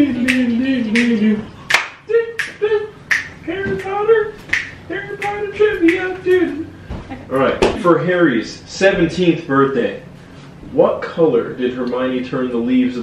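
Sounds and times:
woman singing wordless tune: 0:00.0 - 0:07.3
fingers snapping: 0:00.2 - 0:06.1.

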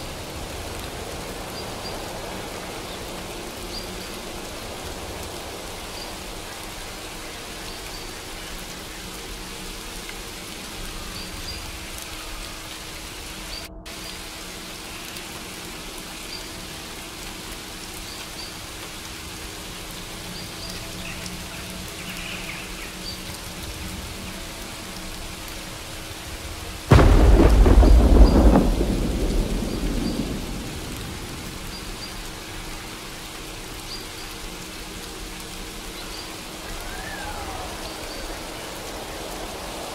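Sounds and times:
steady rainfall: 0:00.0 - 0:39.9
thunderclap: 0:26.9 - 0:32.3.

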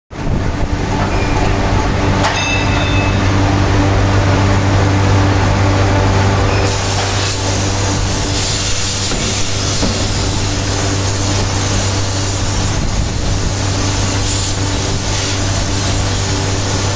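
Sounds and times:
forging machinery humming: 0:00.1 - 0:16.9
metallic knock with ring: 0:02.2 - 0:03.2
hiss: 0:06.7 - 0:16.9.

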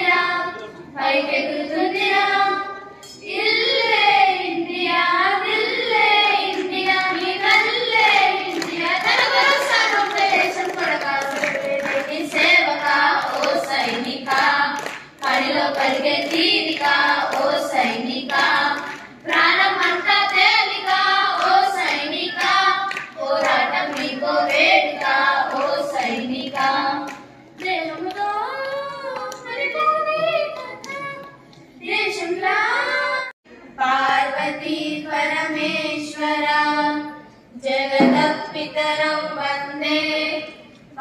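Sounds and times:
girls singing in unison: 0:00.0 - 0:41.0
hand claps: 0:06.5 - 0:29.5.

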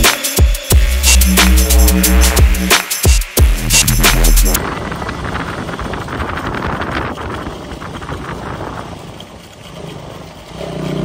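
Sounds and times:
motorcycle engine running: 0:03.4 - 0:11.0
wind rushing over microphone: 0:04.6 - 0:09.6.

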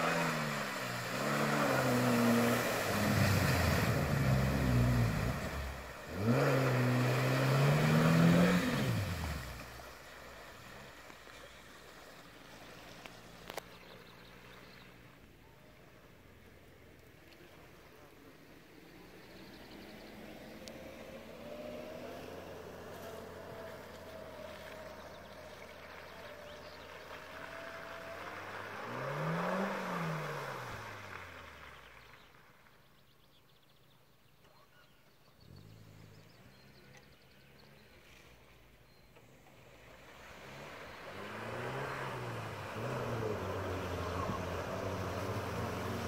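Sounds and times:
engine revving: 0:00.0 - 0:10.0, 0:19.4 - 0:31.9, 0:39.8 - 0:46.0
water splashing: 0:00.0 - 0:14.5, 0:39.6 - 0:46.0
car engine running: 0:00.0 - 0:16.5, 0:39.1 - 0:46.0.

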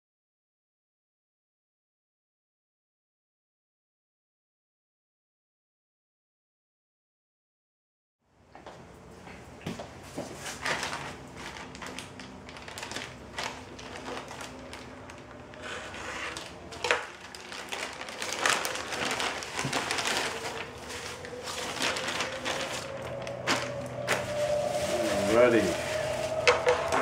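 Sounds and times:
bubble wrap crinkling: 0:10.4 - 0:27.0
plastic satchel crinkling: 0:10.6 - 0:27.0.

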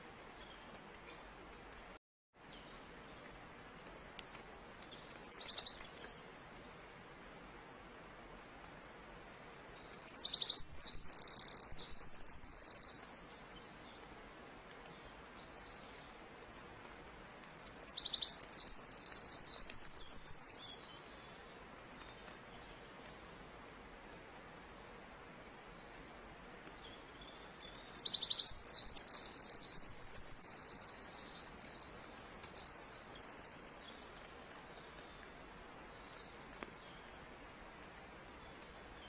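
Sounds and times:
songbird chirping and trilling: 0:03.8 - 0:22.8, 0:24.2 - 0:39.0.

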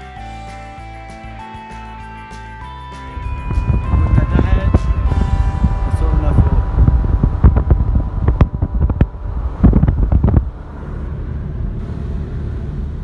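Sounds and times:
road and engine rumble: 0:00.0 - 0:13.0
wind buffeting microphone: 0:03.1 - 0:13.0.

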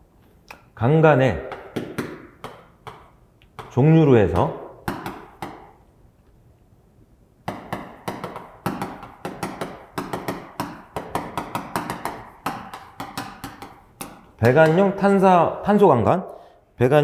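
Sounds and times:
chalk tapping on blackboard: 0:01.5 - 0:05.8, 0:07.4 - 0:15.1.

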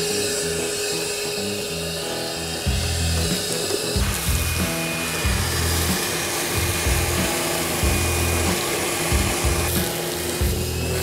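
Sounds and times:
shop vacuum sucking debris: 0:00.0 - 0:11.0
background music with pulsing bass: 0:06.6 - 0:11.0.

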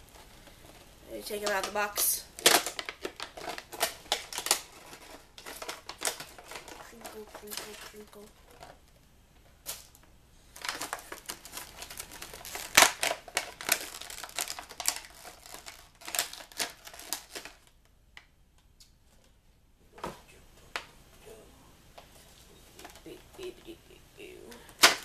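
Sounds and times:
plastic packaging crinkling: 0:00.0 - 0:08.9, 0:09.6 - 0:17.8, 0:24.5 - 0:25.0.

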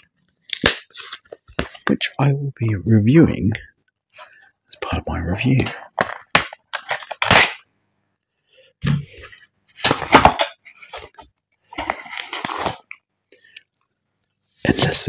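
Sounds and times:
cardboard box crackling and snapping: 0:06.0 - 0:07.6.

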